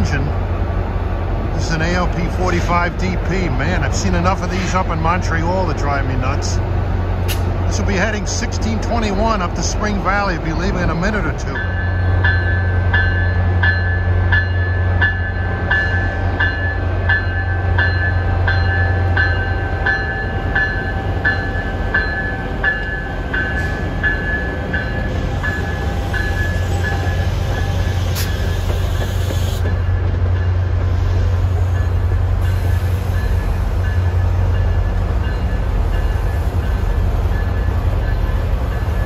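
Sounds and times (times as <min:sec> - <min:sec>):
locomotive bell ringing: 0:08.6 - 0:28.6, 0:29.6 - 0:30.8, 0:33.1 - 0:39.0.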